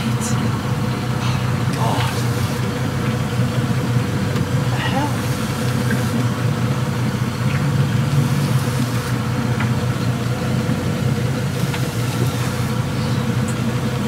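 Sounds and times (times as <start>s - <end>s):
boat engine running: 0.0s - 14.0s.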